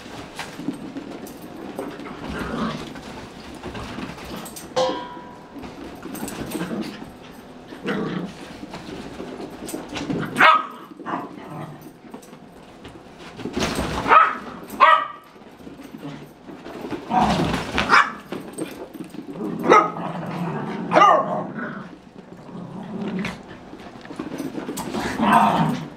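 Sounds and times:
dogs play growling: 0:00.0 - 0:14.8, 0:15.4 - 0:25.9
small dogs barking and yipping: 0:10.3 - 0:11.4, 0:14.0 - 0:15.3.

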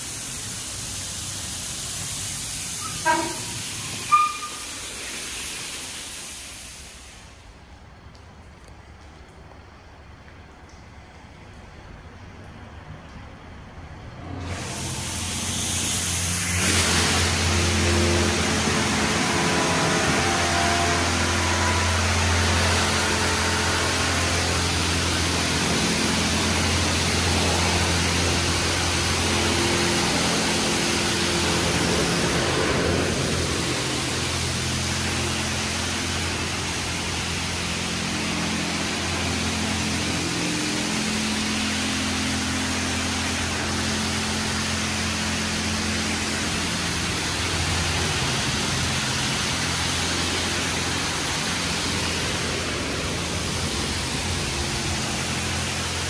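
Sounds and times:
water jets hissing on car: 0:00.0 - 0:56.0
low hum: 0:16.5 - 0:56.0.

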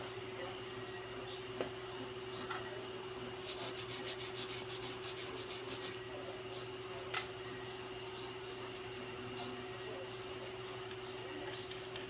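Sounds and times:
scratchy rubbing strokes: 0:03.4 - 0:06.0.

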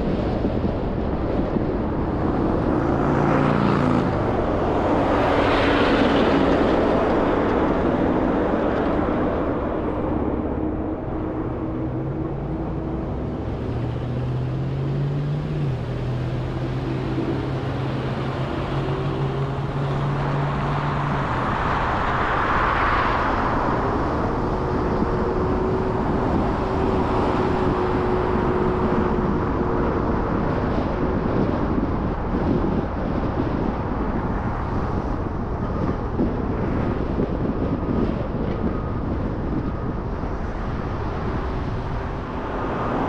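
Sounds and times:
car tyre and engine noise: 0:00.0 - 0:43.0
low drone: 0:00.8 - 0:31.8.

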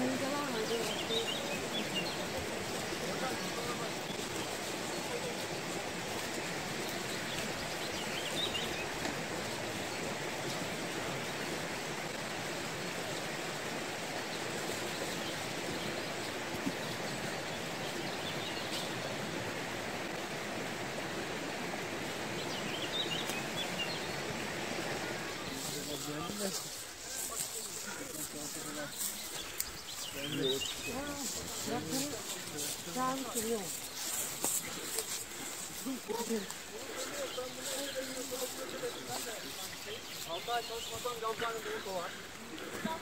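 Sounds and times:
forest stream rushing: 0:00.0 - 0:43.0
bird chirping: 0:27.6 - 0:42.2.

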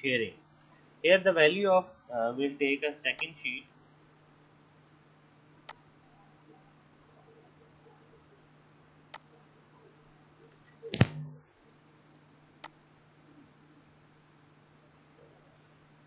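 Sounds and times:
low hum: 0:05.6 - 0:16.0.

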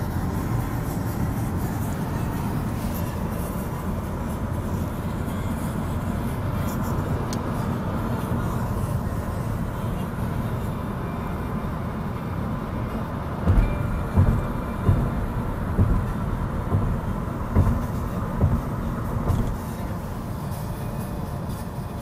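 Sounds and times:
tyres thumping over bridge joints: 0:13.4 - 0:19.8.

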